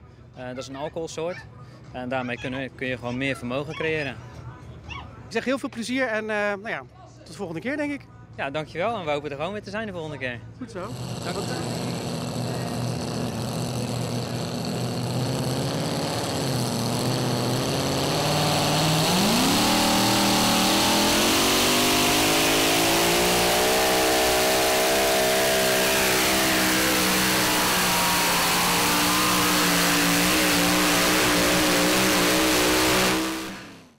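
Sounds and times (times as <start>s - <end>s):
supercharged engine revving: 10.8s - 33.9s.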